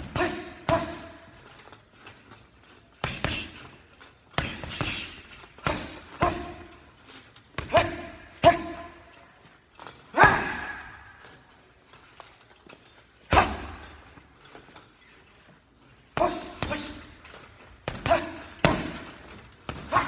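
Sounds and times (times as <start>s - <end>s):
gloves punching heavy bag: 0.0s - 1.5s, 2.9s - 6.8s, 7.5s - 9.0s, 10.1s - 11.0s, 13.2s - 14.2s, 16.1s - 20.0s.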